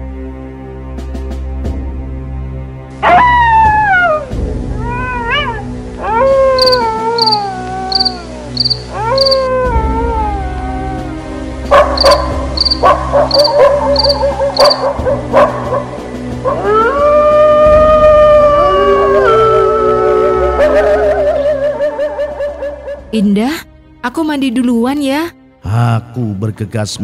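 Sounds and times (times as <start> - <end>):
dogs howling: 3.0 - 4.3, 4.9 - 11.1, 11.7 - 22.9
high repeating chirp: 6.6 - 9.5, 12.0 - 14.9.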